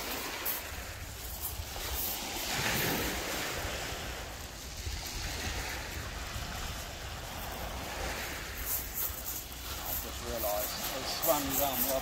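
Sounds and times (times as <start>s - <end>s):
surf washing onto shingle beach: 0.0s - 12.0s.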